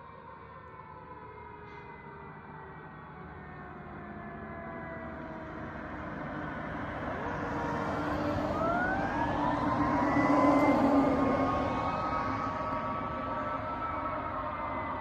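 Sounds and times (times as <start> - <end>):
pickup truck passing: 5.6 - 15.0.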